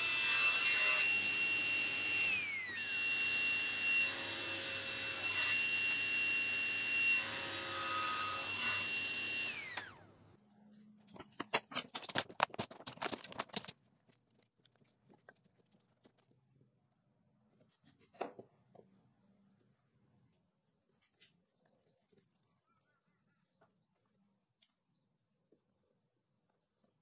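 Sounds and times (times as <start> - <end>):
table saw whine cutting wood: 0.0 - 10.1
sharp wooden clacks: 11.1 - 13.8.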